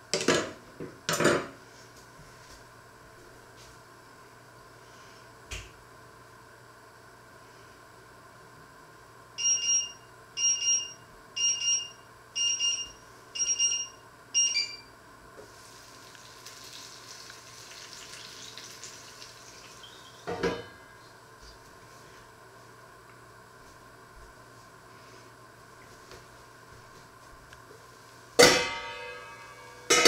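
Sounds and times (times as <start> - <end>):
electronic kitchen timer beeping: 9.4 - 14.9
faint steady hiss: 15.4 - 29.9.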